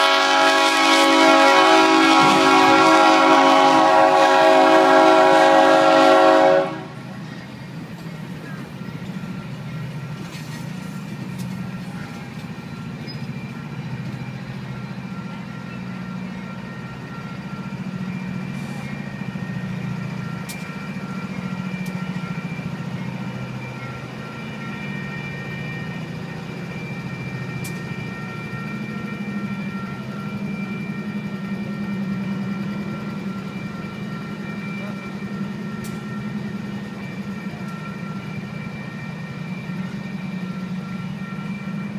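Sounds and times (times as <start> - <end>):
locomotive engine drone: 0.0 - 41.9
high ringing tones: 11.2 - 41.9.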